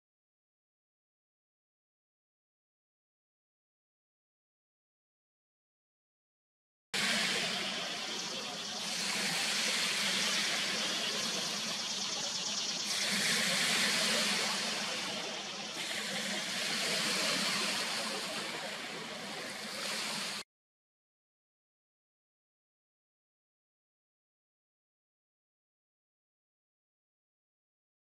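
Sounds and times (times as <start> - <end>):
lake waves rushing: 7.0 - 20.4.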